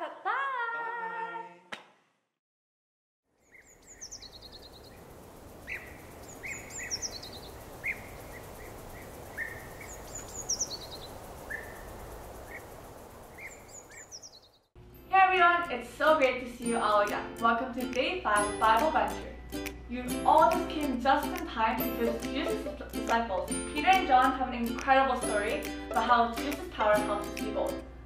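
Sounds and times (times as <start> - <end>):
descending bird call: 3.4 - 12.7, 13.3 - 14.7
birds chirping: 3.4 - 14.8
steady background hiss: 3.6 - 14.4.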